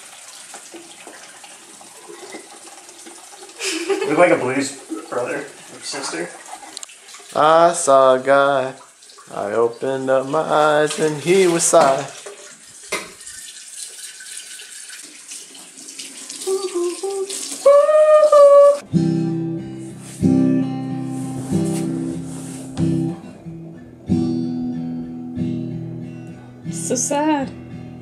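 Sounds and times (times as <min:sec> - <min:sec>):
acoustic guitar strumming chords: 0:17.7 - 0:28.0.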